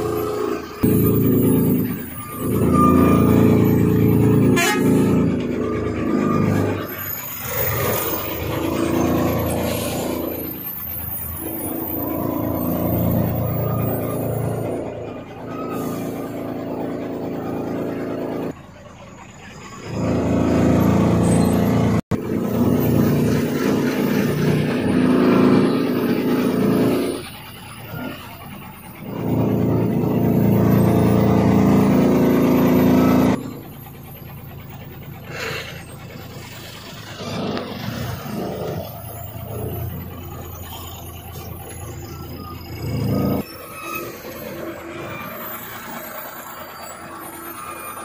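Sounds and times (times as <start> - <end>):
heavy truck engine running: 0.0 - 48.0.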